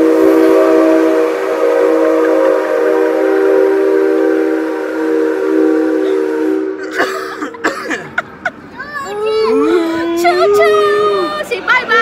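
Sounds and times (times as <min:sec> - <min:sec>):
train whistle chord: 0:00.0 - 0:06.9.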